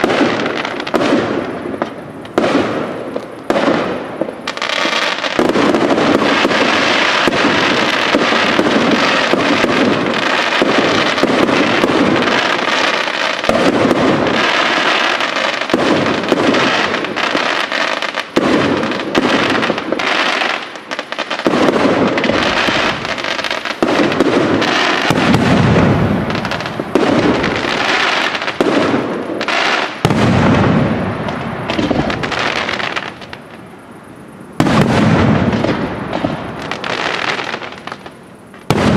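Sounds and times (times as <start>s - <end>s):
deep fireworks booms: 0.0s - 38.9s
fireworks bursting and crackling: 0.0s - 38.9s.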